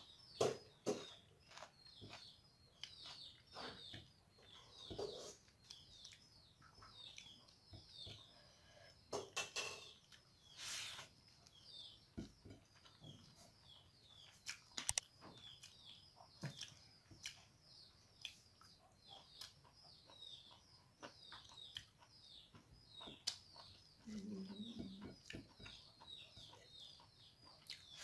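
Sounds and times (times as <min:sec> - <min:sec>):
small birds chirping: 0:00.0 - 0:28.0
clicks and smacks of eating: 0:00.4 - 0:08.3, 0:13.8 - 0:28.0.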